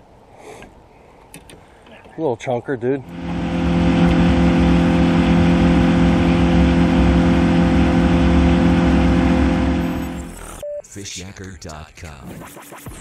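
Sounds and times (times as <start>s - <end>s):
outboard engine droning: 3.0s - 10.6s.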